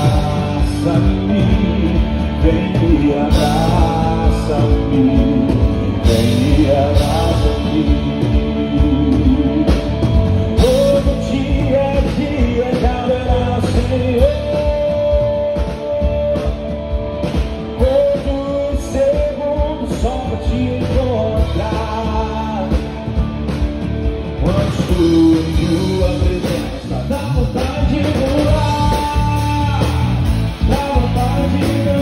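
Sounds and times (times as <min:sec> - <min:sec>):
man singing into microphone: 0:00.0 - 0:17.0, 0:17.6 - 0:23.2, 0:24.4 - 0:32.0
live band playing gospel song: 0:00.0 - 0:32.0.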